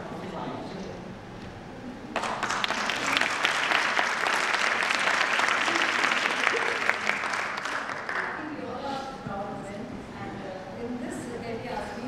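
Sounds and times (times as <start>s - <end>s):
audience applauding: 2.1s - 8.5s.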